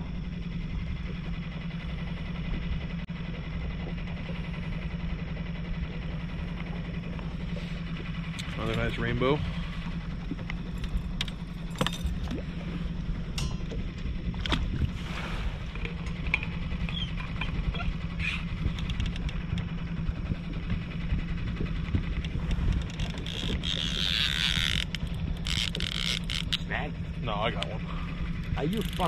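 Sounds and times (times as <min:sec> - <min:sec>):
outboard motor running: 0:00.0 - 0:29.0.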